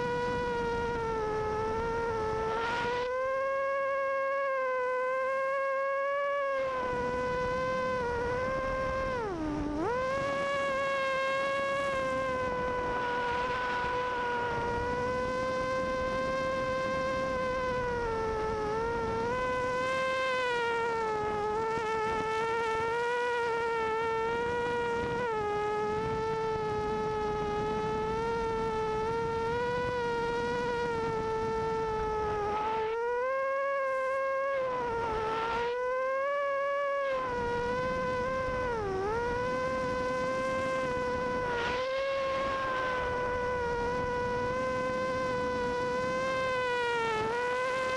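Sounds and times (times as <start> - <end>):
quadcopter motors whining: 0.0 - 47.9
rushing wind noise: 6.6 - 20.0, 37.1 - 47.9.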